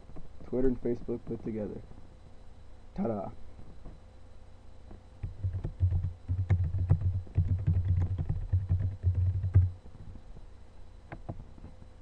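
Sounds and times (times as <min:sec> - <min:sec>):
typing on keyboard: 0:05.2 - 0:09.7.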